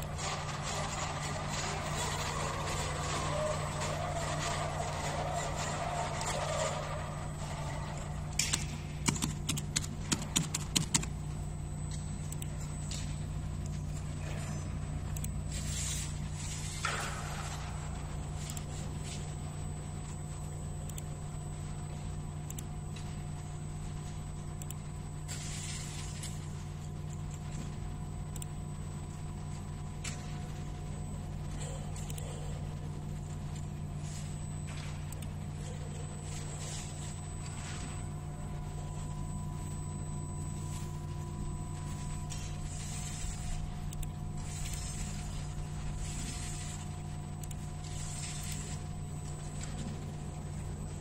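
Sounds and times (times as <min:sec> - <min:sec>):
steady tones: 0:00.0 - 0:25.1
low background hum: 0:00.0 - 0:51.0.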